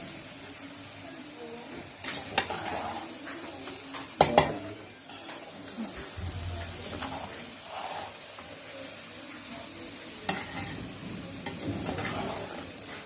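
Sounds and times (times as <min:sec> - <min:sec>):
spoon scraping rice in a pot: 0:02.0 - 0:06.0, 0:06.8 - 0:08.5, 0:10.2 - 0:13.0.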